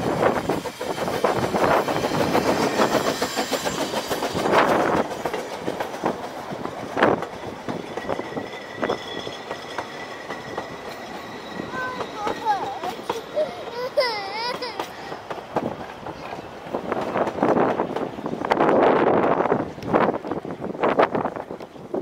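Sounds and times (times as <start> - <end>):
wheels clacking over rail joints: 0.0 - 21.9
steam locomotive passing: 0.0 - 22.0
faint thin squeal: 8.1 - 12.5.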